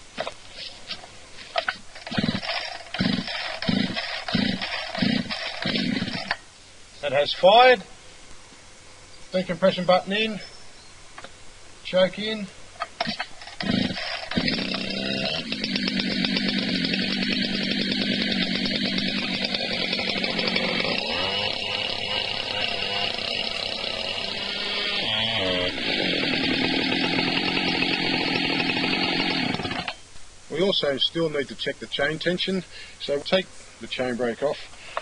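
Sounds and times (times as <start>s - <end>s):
chainsaw starter cord pull: 1.6s - 6.4s, 13.0s - 30.0s
two-stroke chainsaw running: 1.6s - 6.4s, 13.0s - 30.0s.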